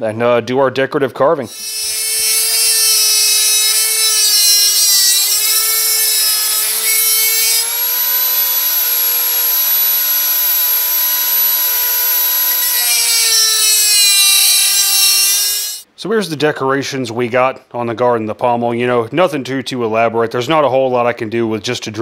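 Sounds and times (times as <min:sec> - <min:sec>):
rotary tool whining: 0:01.5 - 0:15.8.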